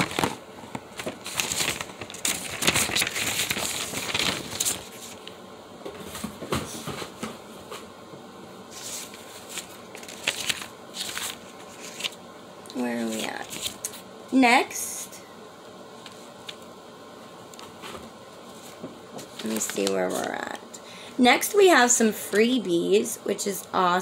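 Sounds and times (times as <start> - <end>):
packaging rustling and crinkling: 0.0 - 5.4, 8.7 - 12.2, 12.8 - 14.0, 17.5 - 20.5.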